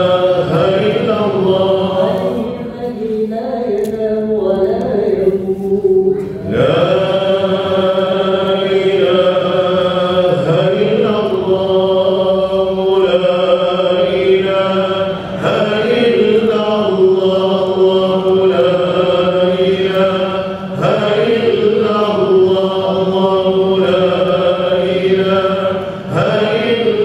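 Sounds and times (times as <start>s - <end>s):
voices chanting: 0.0s - 27.0s.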